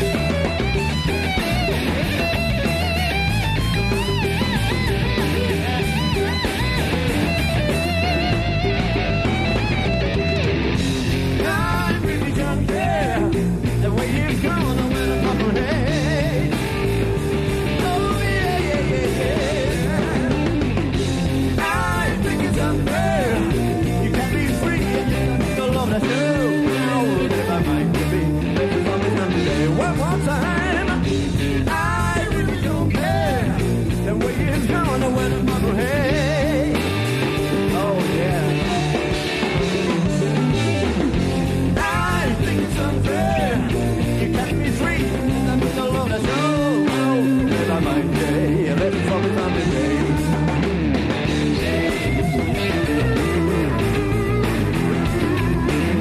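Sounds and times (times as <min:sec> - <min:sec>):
electric guitar solo: 0:00.0 - 0:11.4, 0:49.0 - 0:56.0
blues-rock band playing: 0:00.0 - 0:56.0.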